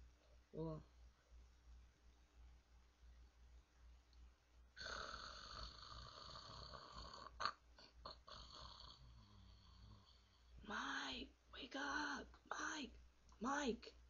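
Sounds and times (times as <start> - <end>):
person snoring: 4.8 - 10.5.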